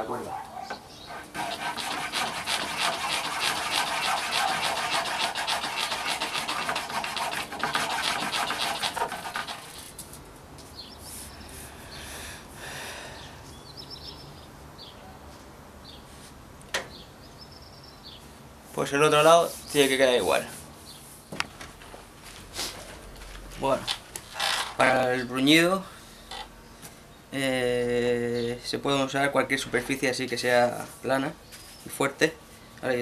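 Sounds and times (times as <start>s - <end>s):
file rasping on wood: 1.1s - 9.9s.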